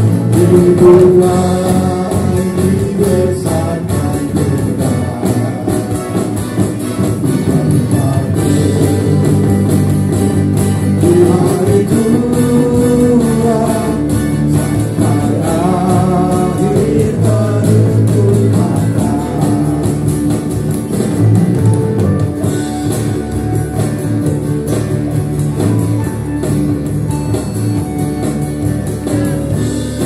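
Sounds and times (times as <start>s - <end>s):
small live band playing: 0.0s - 30.0s
man singing into a microphone: 0.2s - 6.3s, 7.2s - 9.7s, 10.9s - 20.4s.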